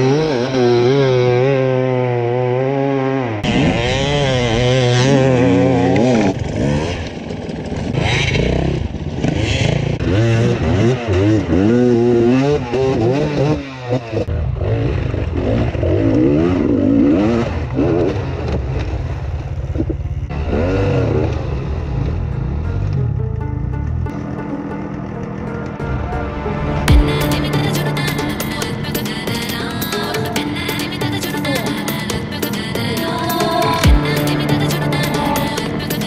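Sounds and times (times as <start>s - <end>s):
motorcycle engine revving hard: 0.0s - 19.5s, 20.2s - 22.4s.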